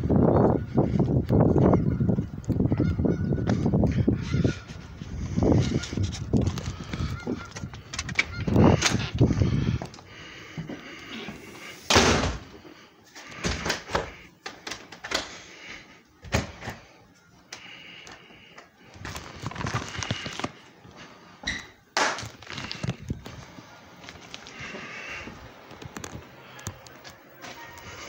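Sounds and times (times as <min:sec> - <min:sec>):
footsteps: 0:03.4 - 0:16.8, 0:22.2 - 0:28.0
door shutting with a thud: 0:11.9 - 0:12.5.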